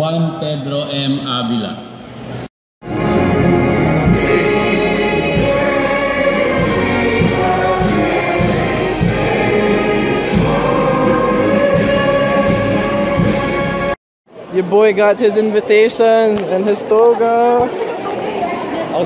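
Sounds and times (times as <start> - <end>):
crowd singing in unison: 2.8 - 14.0.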